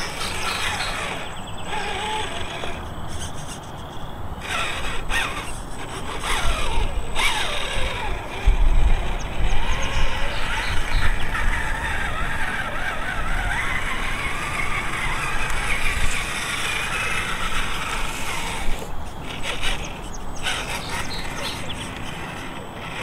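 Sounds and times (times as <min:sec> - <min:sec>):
toy truck motor and gears whining: 0:00.0 - 0:23.0.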